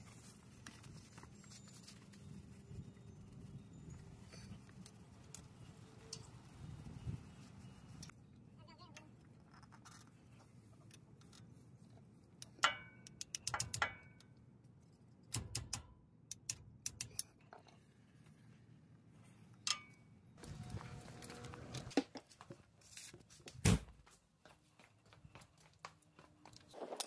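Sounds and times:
metal pry tool scraping and clicking: 0:12.4 - 0:14.3, 0:15.2 - 0:17.4.

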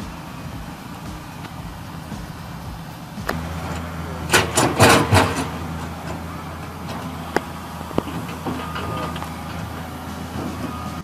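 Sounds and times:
excavator diesel engine running: 0:00.0 - 0:11.0
sharp knocks: 0:04.3 - 0:05.6.

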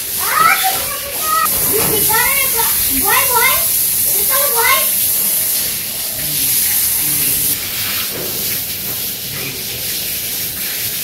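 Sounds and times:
steady high hiss: 0:00.0 - 0:08.7.

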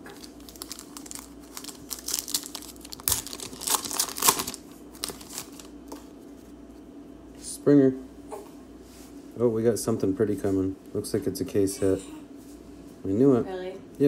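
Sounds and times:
foil wrapper tearing and crinkling: 0:00.1 - 0:06.0.

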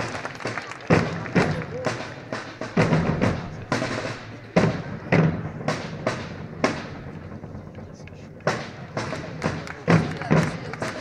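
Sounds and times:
drums beating a rhythm: 0:00.0 - 0:11.0.

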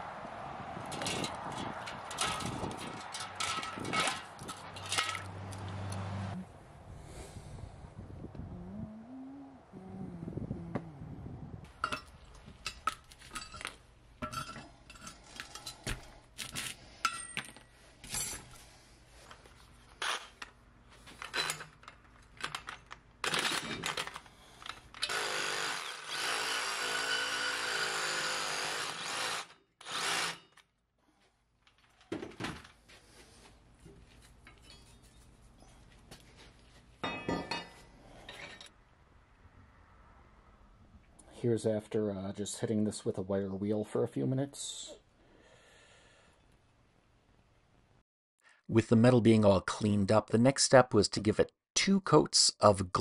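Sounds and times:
knocks and scrapes: 0:00.8 - 0:06.1
reciprocating saw cutting metal: 0:25.0 - 0:30.6.

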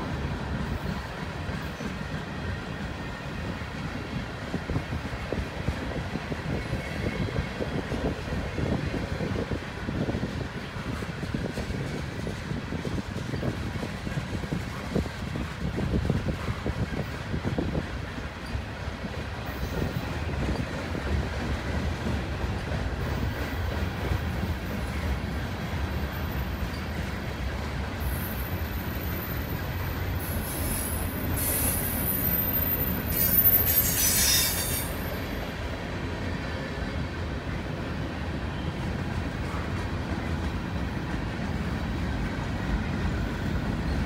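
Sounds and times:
freight train rumbling past: 0:00.0 - 0:44.0
wheels squealing: 0:28.0 - 0:35.5.

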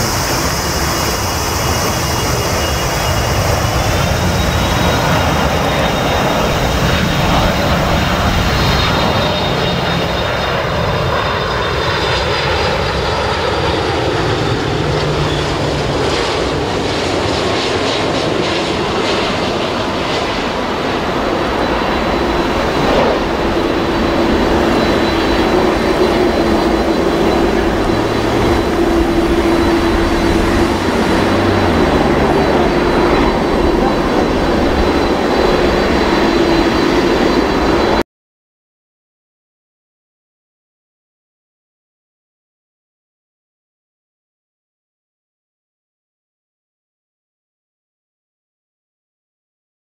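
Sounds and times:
jet engines whining: 0:00.0 - 0:38.0.

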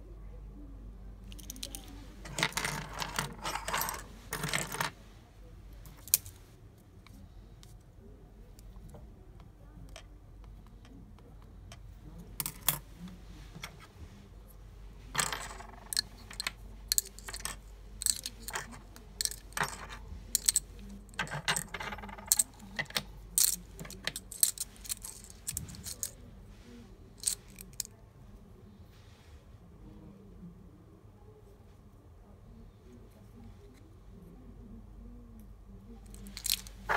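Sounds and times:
metal keys clinking: 0:15.2 - 0:26.1, 0:27.2 - 0:27.9, 0:36.1 - 0:36.9.

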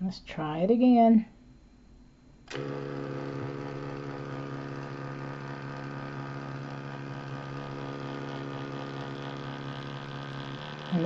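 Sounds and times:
thermal printer motor humming: 0:02.5 - 0:11.0.

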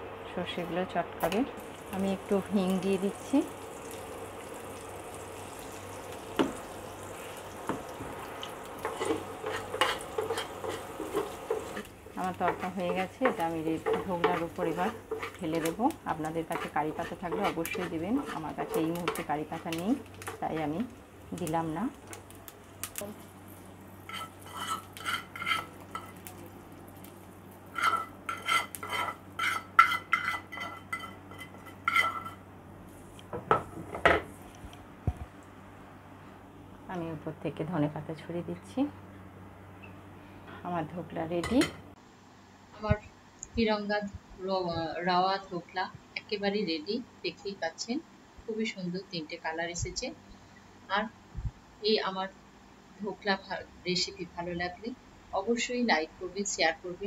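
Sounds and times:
seeds sizzling and crackling in oil: 0:01.2 - 0:33.2.

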